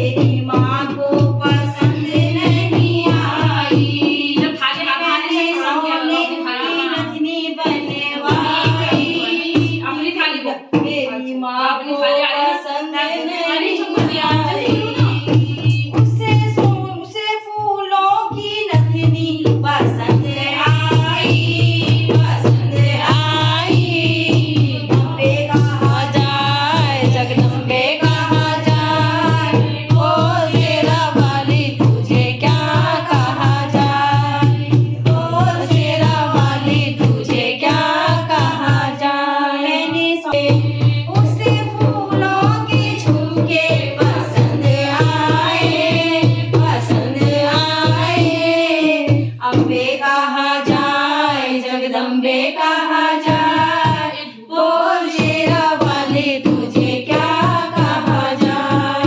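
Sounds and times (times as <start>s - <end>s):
drum beat with deep bass: 0.0s - 4.6s, 6.0s - 10.2s, 13.6s - 17.1s, 18.3s - 39.0s, 40.3s - 49.9s, 55.0s - 59.0s
devotional singing: 0.0s - 59.0s.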